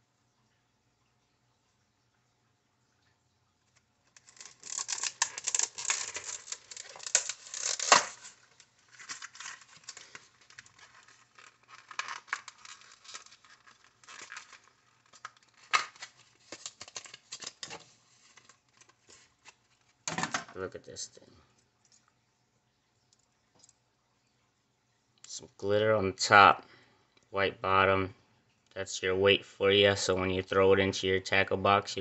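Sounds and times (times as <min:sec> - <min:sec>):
plastic blister pack crackling: 0:04.1 - 0:20.2.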